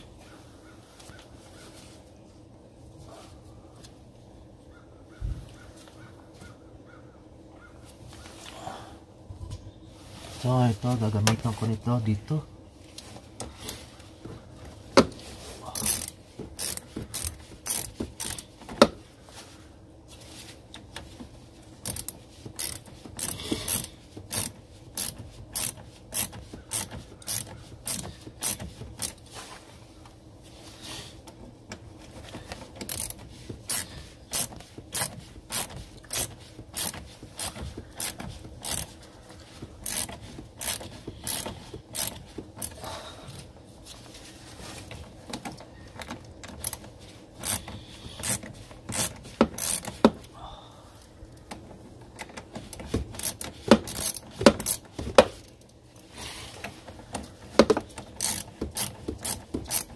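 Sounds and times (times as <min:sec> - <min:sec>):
socket ratchet clicking: 0:15.8 - 0:18.5, 0:21.8 - 0:29.2, 0:32.8 - 0:38.9, 0:39.8 - 0:42.8, 0:47.4 - 0:50.1, 0:53.2 - 0:54.9, 0:58.1 - 0:59.9.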